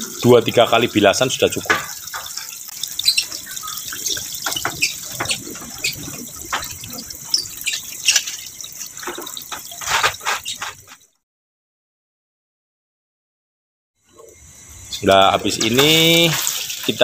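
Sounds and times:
water pouring and splashing: 0.0 - 11.2, 14.3 - 17.0
water trickling onto ground: 0.1 - 11.0, 15.4 - 17.0.

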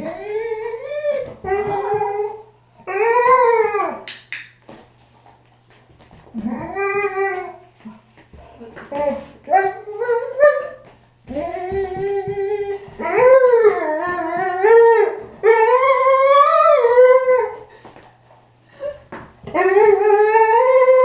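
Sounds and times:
dog whining and howling: 0.0 - 4.0, 6.3 - 7.7, 9.0 - 17.7, 18.7 - 21.0.

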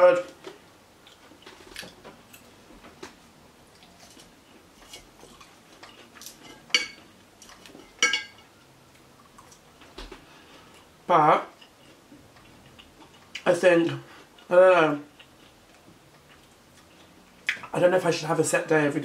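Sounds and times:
fork clinking on glass: 8.0 - 8.4.

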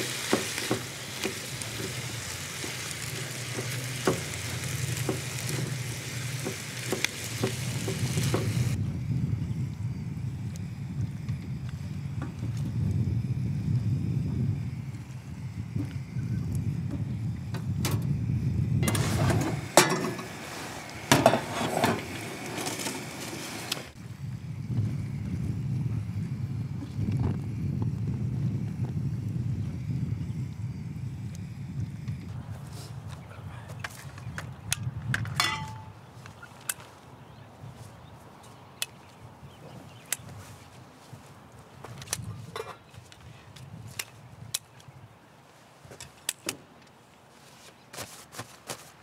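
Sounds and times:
camp stove hiss: 0.0 - 37.0
low wind rumble: 0.0 - 45.4
metal cookware clinking: 35.4 - 35.9.

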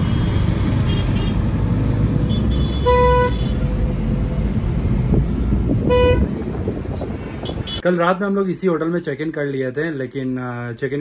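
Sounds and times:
car horns honking: 0.0 - 3.6, 5.8 - 7.8
low traffic rumble: 0.0 - 11.0.

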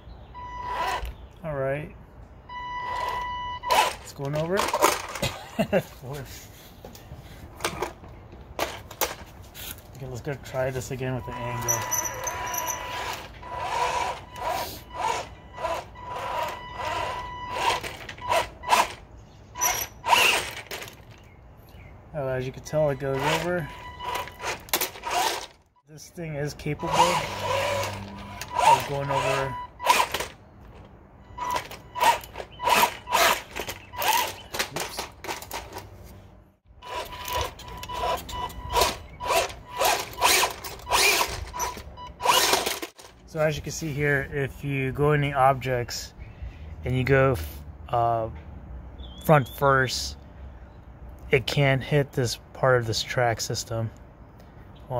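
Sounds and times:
tracks scraping against logs: 8.6 - 19.0, 19.6 - 21.3, 23.0 - 25.6, 26.6 - 43.2
electric motor whining: 11.4 - 19.0, 26.8 - 30.3, 36.8 - 42.8.

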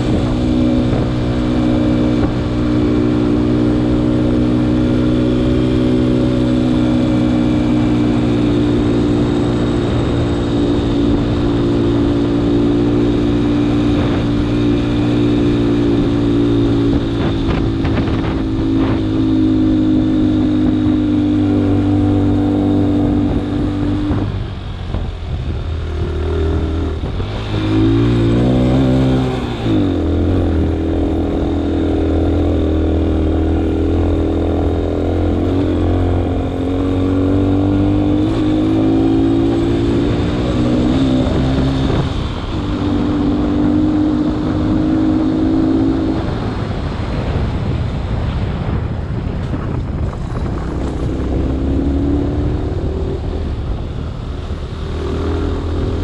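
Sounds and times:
vehicle engine running under load: 0.0 - 56.0.

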